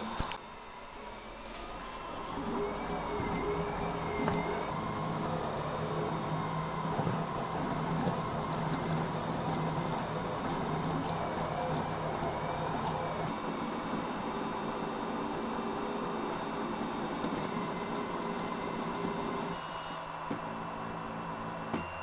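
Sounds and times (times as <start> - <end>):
cooling fan rushing: 0.0 - 19.5
stepper motors whining: 1.0 - 13.4.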